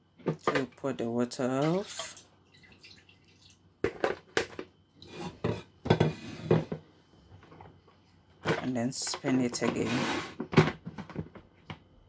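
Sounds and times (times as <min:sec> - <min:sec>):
plastic clattering on plastic: 0:00.2 - 0:00.8, 0:03.8 - 0:04.7, 0:05.3 - 0:06.8, 0:08.4 - 0:11.8.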